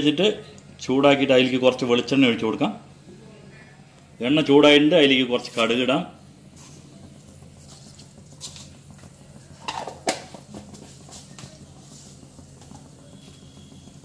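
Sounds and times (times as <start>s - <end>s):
mustard seeds popping in oil: 6.6s - 14.0s.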